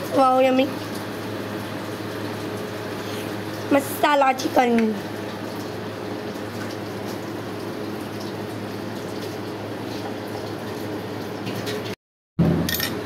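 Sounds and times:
constant low hum: 12.4 - 13.0.

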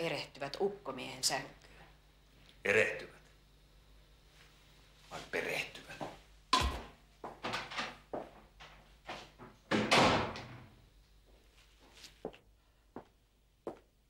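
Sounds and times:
footsteps on hard floor: 8.1 - 9.5, 11.3 - 12.4
door banging shut: 9.7 - 10.8.

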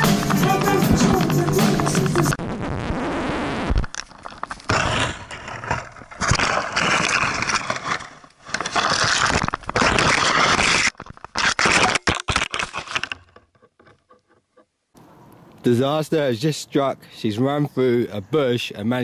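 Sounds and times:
twigs scraping against camera: 3.8 - 14.7.

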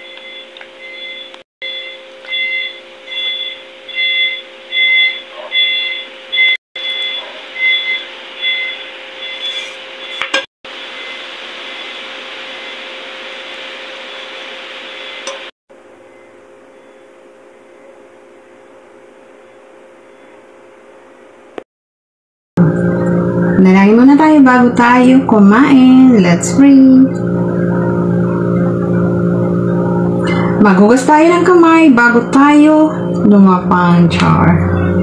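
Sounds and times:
electronic beeps: 0.0 - 10.2, 27.1 - 35.0
steady low hum: 22.6 - 35.0.

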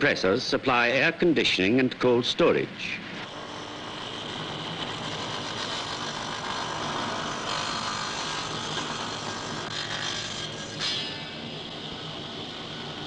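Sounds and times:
meat band saw cutting: 3.2 - 13.0.

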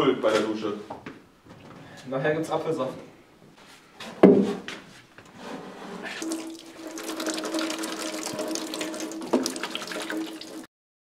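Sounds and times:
water stream into plastic sink: 6.0 - 10.7.

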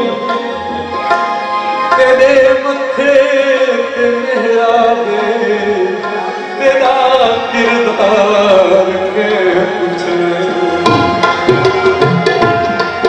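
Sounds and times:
man singing folk song: 1.9 - 10.9
tabla strokes: 10.8 - 13.0.

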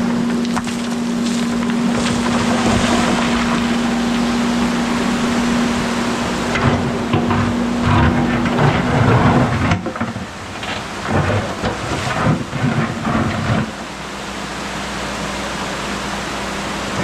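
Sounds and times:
excavator engine hum: 0.0 - 17.0
stone crunching and grinding: 0.3 - 3.7.

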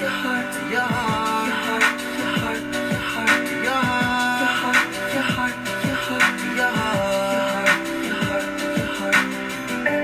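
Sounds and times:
instrumental hip hop music: 0.0 - 10.0
deep kick drums: 0.9 - 1.4, 3.8 - 4.4.

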